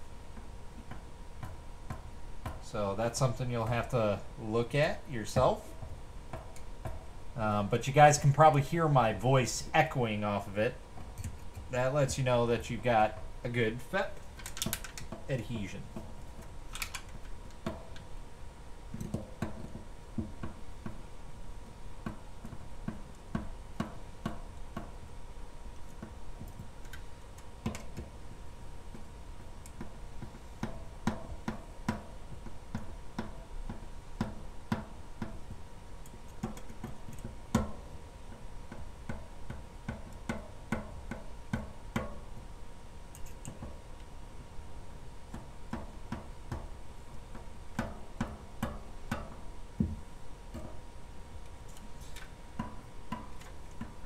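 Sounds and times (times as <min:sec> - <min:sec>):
tool clicking and tapping on screws: 0:10.9 - 0:11.7, 0:14.2 - 0:18.1, 0:18.9 - 0:25.0, 0:25.7 - 0:28.2, 0:28.9 - 0:42.5, 0:43.1 - 0:44.2, 0:45.2 - 0:50.8, 0:51.4 - 0:54.0.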